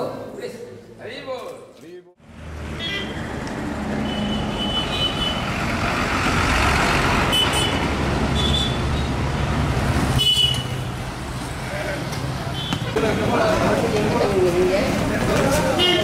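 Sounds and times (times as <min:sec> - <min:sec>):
bus driving past: 0:02.2 - 0:10.2
bus engines running: 0:02.3 - 0:16.0.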